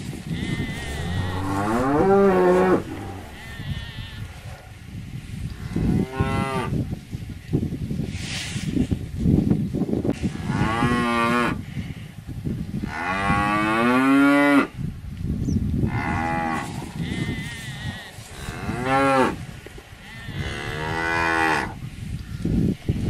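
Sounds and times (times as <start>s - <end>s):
cattle mooing: 0.3s - 4.3s.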